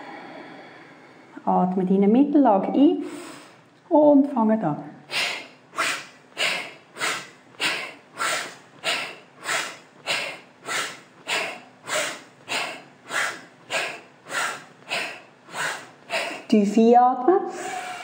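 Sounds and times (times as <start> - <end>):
woman breathing forcefully through nose: 0.0 - 1.4, 5.1 - 16.5.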